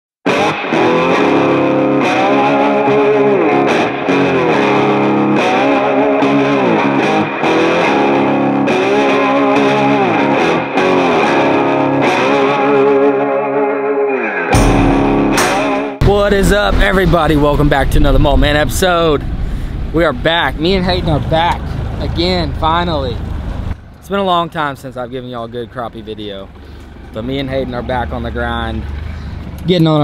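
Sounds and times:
distorted electric guitar music: 0:00.3 - 0:18.0.

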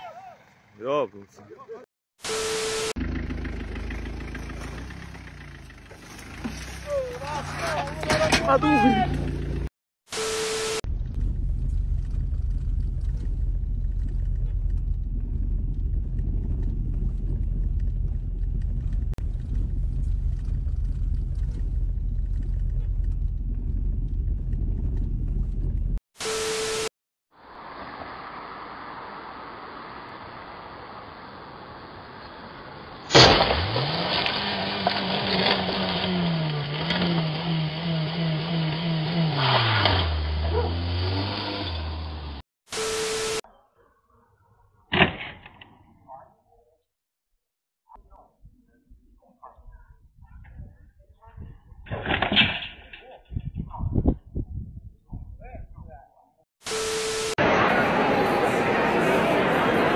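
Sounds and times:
engine running with wobbling note: 0:02.4 - 0:09.7, 0:10.9 - 0:26.0, 0:33.6 - 0:42.4
sharp bang: 0:33.1 - 0:33.7.

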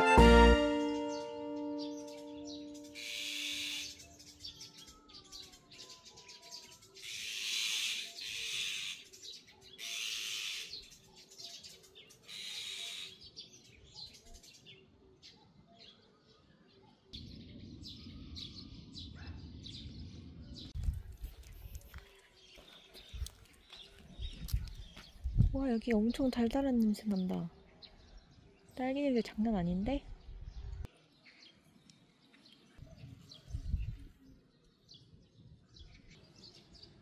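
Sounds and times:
magpies giving rasping alarm calls: 0:03.0 - 0:04.0, 0:07.0 - 0:09.0, 0:09.8 - 0:10.8, 0:12.3 - 0:13.2.

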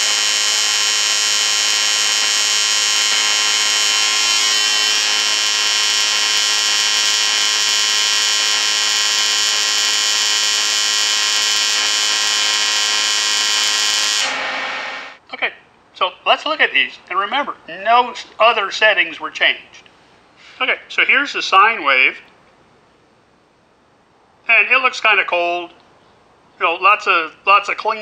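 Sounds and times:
welding arc buzzing: 0:00.0 - 0:15.2.

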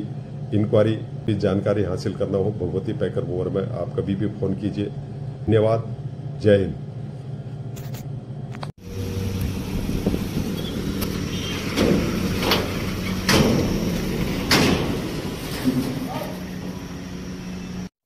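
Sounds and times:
car engine hum: 0:08.8 - 0:17.9
wheels clunking on metal ramp: 0:09.4 - 0:17.8.

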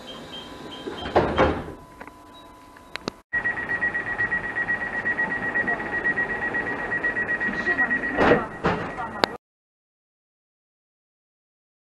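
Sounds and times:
fast-pulsing warning beep: 0:00.0 - 0:01.2, 0:03.4 - 0:09.4
train doors slamming shut: 0:00.8 - 0:01.8.

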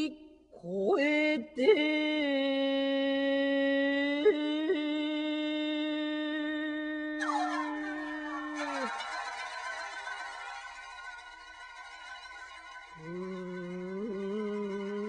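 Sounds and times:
person singing: 0:00.0 - 0:09.3, 0:13.0 - 0:15.0
instruments playing: 0:07.2 - 0:15.0.

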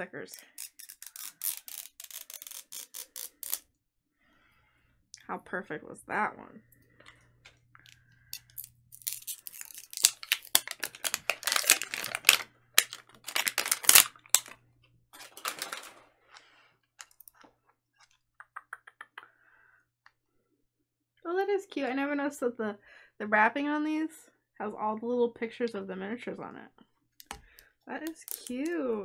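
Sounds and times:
plastic wrap crinkling and tearing: 0:08.4 - 0:14.6, 0:15.2 - 0:16.0, 0:28.1 - 0:28.6.

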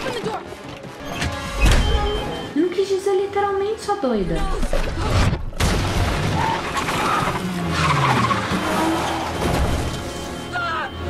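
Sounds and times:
car tires squealing: 0:06.4 - 0:09.9.

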